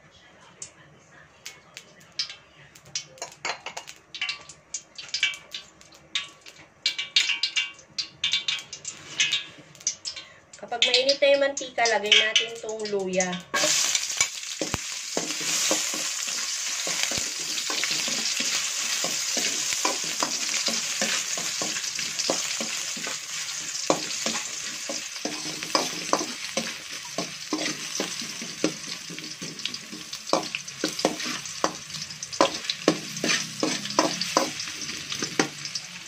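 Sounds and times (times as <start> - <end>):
food sizzling in hot oil: 2.2 - 36.0
metal utensil scraping wok: 6.2 - 11.0, 13.5 - 36.0.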